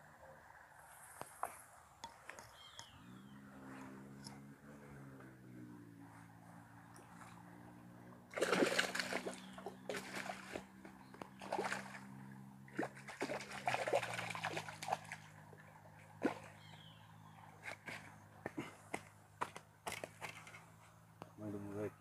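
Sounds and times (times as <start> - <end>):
fish splashing at surface: 8.3 - 10.7, 11.4 - 12.1, 12.7 - 15.3.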